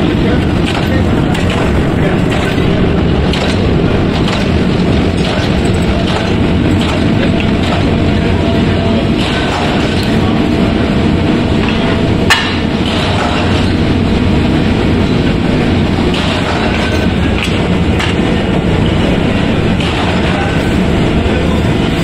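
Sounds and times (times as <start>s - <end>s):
metalworking machinery rumble: 0.0s - 22.0s.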